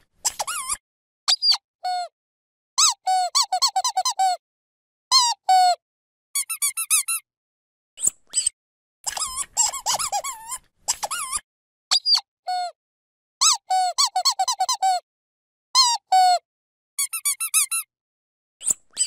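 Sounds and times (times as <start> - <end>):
dog squeaky toy squeaking: 0.2 - 2.0, 2.8 - 4.4, 6.4 - 7.2, 9.1 - 12.2, 13.4 - 15.0, 17.0 - 17.9.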